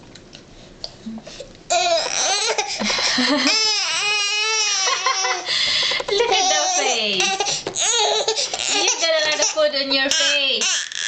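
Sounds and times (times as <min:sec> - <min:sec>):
infant crying: 0:01.7 - 0:05.5, 0:06.3 - 0:11.0.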